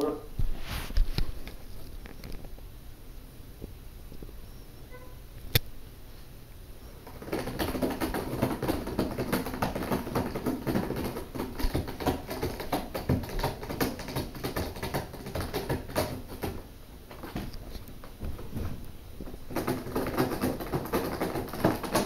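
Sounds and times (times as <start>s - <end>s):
cat scratching cardboard: 7.0s - 22.0s.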